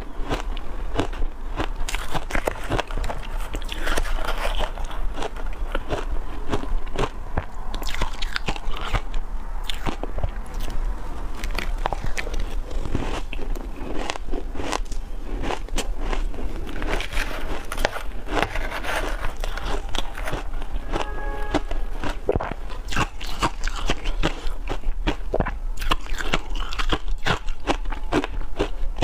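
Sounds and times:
chewing crunchy ice: 0.0 - 29.0
metal spoon scraping ice: 1.9 - 5.8, 16.6 - 21.8.

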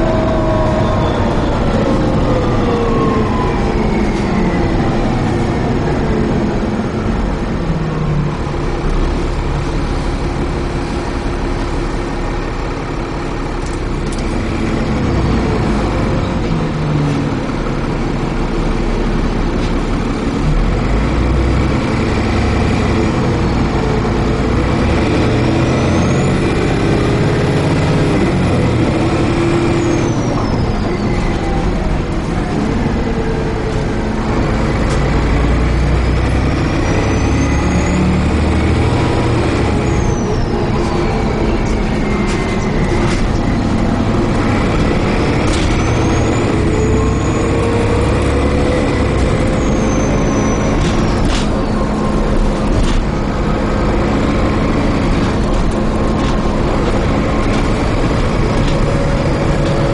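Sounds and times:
high whine: 0.0 - 7.6
bus diesel engine rumble: 0.0 - 59.9.

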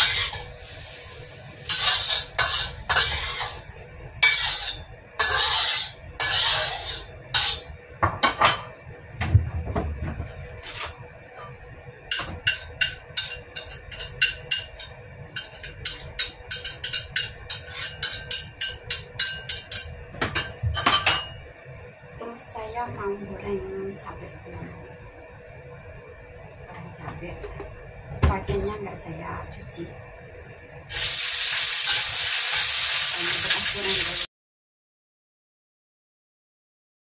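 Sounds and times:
metal spatula scraping wok: 0.0 - 7.7, 12.2 - 19.9, 30.9 - 34.1.

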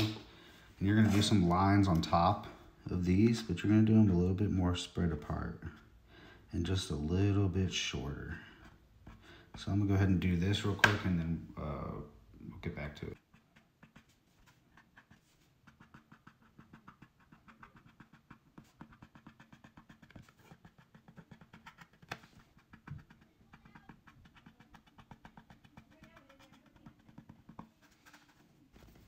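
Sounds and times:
marker tip scratching on plastic: 13.2 - 29.0.

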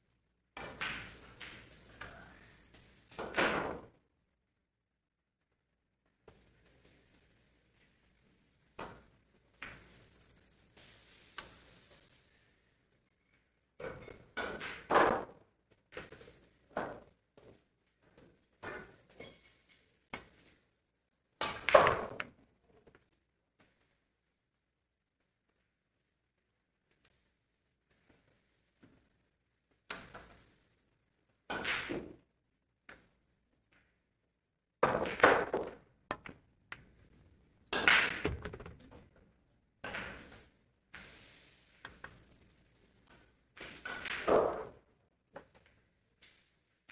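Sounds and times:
pool balls clacking: 0.6 - 2.4, 8.8 - 10.0, 13.8 - 20.6, 21.4 - 23.1, 31.5 - 32.3, 34.8 - 40.5, 43.6 - 45.7
pool balls knocking: 34.8 - 37.0, 37.7 - 39.2, 44.0 - 44.8.

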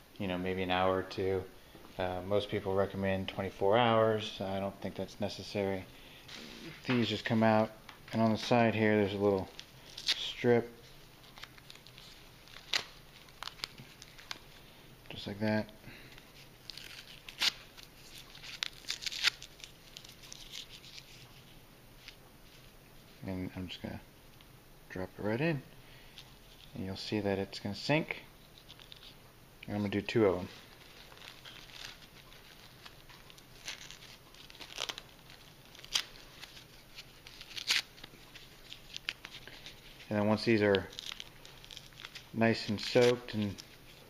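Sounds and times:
plastic wrapping crinkling and tearing: 8.4 - 14.8, 16.1 - 22.7, 28.4 - 29.2, 30.3 - 44.0.

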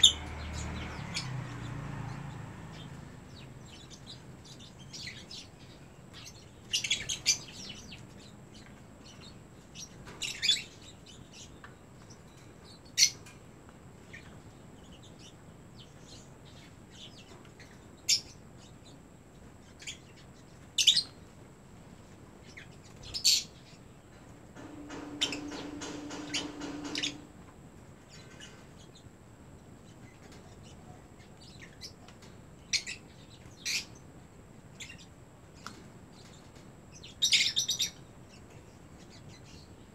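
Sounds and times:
lovebirds chirping: 0.0 - 13.3.

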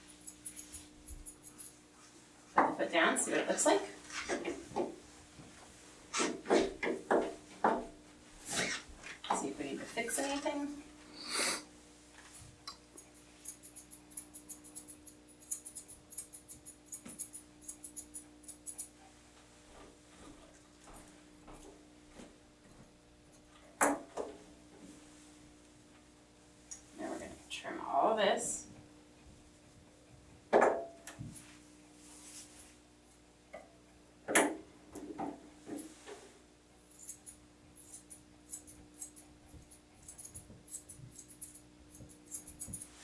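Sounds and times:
scissors snipping hair: 0.2 - 1.8, 12.6 - 19.0, 36.9 - 43.0.

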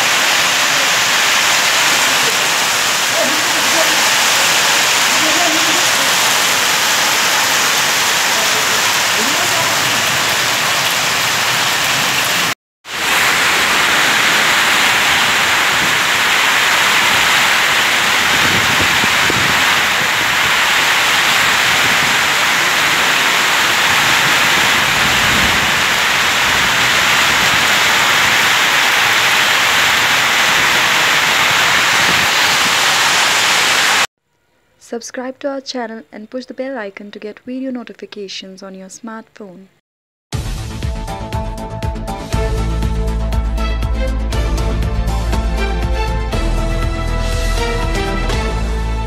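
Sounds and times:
hail pelting down: 0.0 - 34.1.

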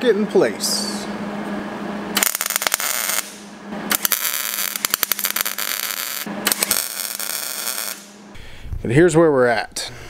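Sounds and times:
welder arc crackling: 2.2 - 8.2.

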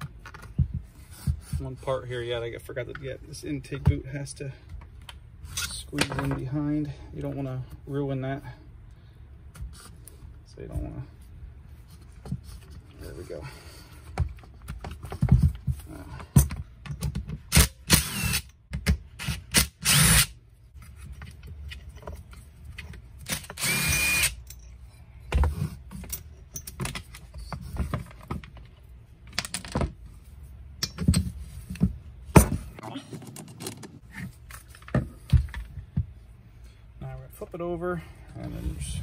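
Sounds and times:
impact driver running: 23.4 - 24.4
tools and plastic parts clicking: 33.1 - 35.6.

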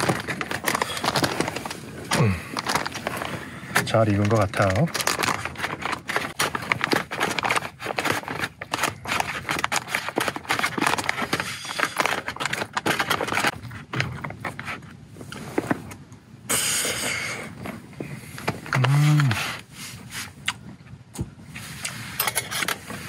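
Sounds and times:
packaging crinkling and utensils scraping: 0.0 - 15.9, 21.6 - 23.0.

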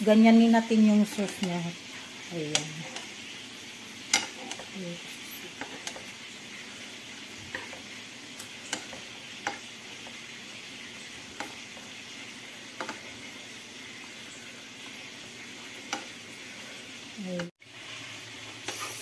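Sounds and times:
sauce sizzling in a frying pan: 0.0 - 19.0
metal spoon clinking on pan: 4.1 - 4.7.

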